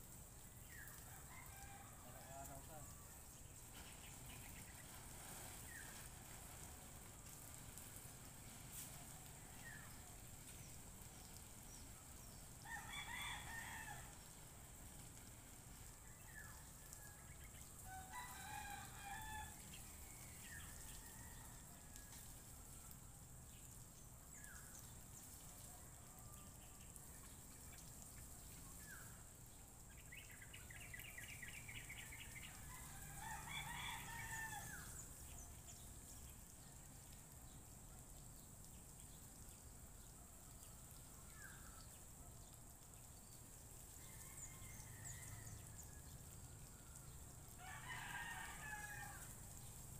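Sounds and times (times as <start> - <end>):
faint rooster crowing: 0.6 - 4.7, 8.7 - 10.6, 11.7 - 14.5, 15.8 - 23.1, 25.4 - 27.2, 30.8 - 35.8, 43.8 - 49.8.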